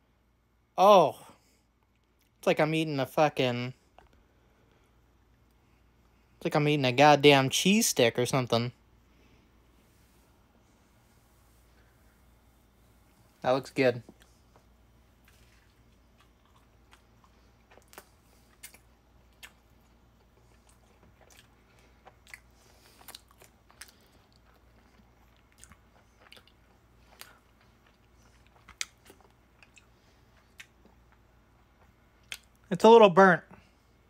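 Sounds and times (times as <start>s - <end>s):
person crunching and chewing food: 14.0s - 32.7s.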